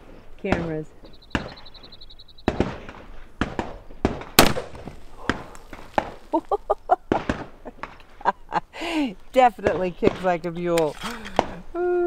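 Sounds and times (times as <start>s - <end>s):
pistol gunshots: 0.4s - 1.7s, 2.4s - 6.3s, 7.1s - 8.0s.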